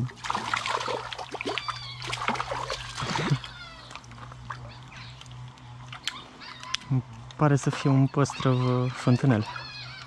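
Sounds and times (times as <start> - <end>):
fish splashing at water surface: 0.0 - 4.6.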